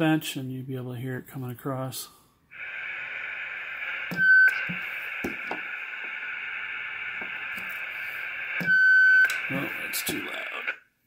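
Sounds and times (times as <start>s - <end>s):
radio static hiss: 2.5s - 10.9s.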